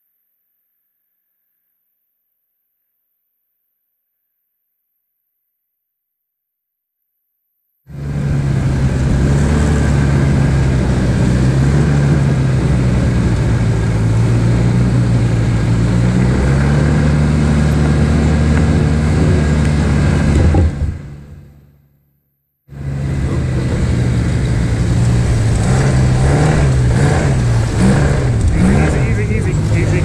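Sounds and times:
snowmobile engine running: 7.9 - 21.5, 22.7 - 30.0.

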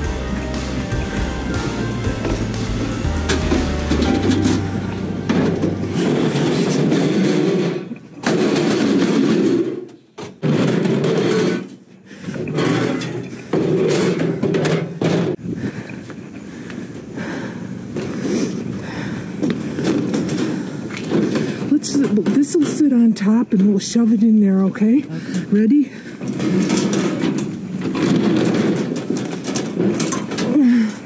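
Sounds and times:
panels scraping: 0.0 - 15.4, 26.3 - 30.5.

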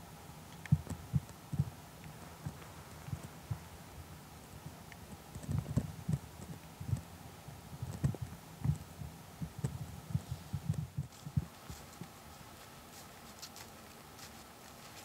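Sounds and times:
faint background hiss: 0.0 - 15.0
soft muffled low thumps: 7.7 - 11.8.

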